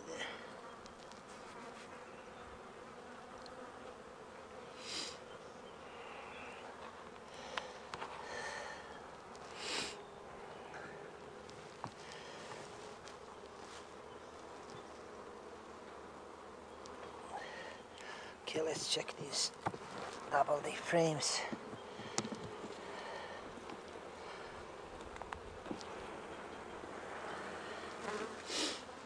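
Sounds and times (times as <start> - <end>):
bees humming: 0.0 - 29.0
light clicks of hive frames: 0.6 - 2.0, 3.3 - 4.0, 6.7 - 8.2, 8.9 - 9.6, 10.7 - 15.0, 16.8 - 20.3, 21.4 - 22.9.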